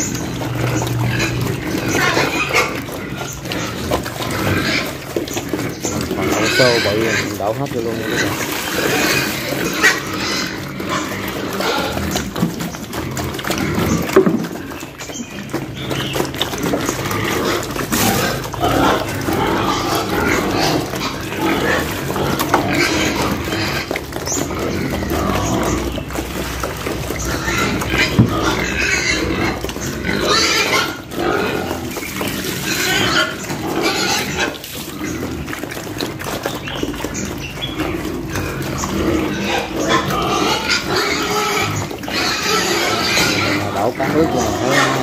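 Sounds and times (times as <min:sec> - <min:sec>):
pig grunts: 0:00.0 - 0:45.0
wet eating noises: 0:00.0 - 0:45.0.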